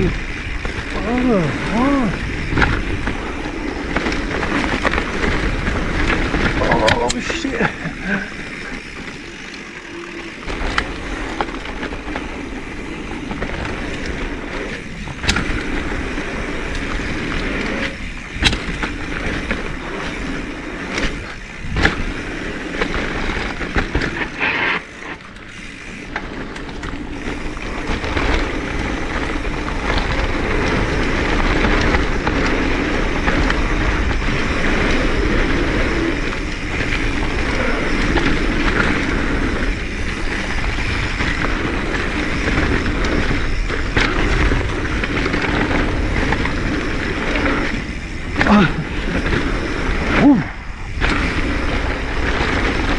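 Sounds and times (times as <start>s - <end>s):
bike knocks and rattles: 0.0s - 24.4s, 25.2s - 52.9s
bike tyre noise on dirt: 0.0s - 52.9s.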